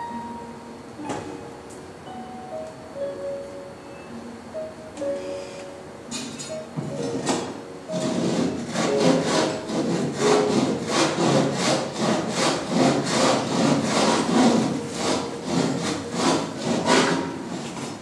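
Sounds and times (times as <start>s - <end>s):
rhythmic rasping strokes: 4.1s - 18.0s.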